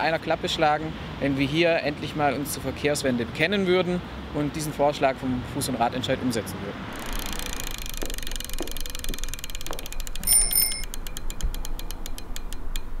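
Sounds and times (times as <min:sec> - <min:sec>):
bicycle freewheel ticking: 0:07.0 - 0:12.8
bicycle bell ring: 0:10.2 - 0:10.9.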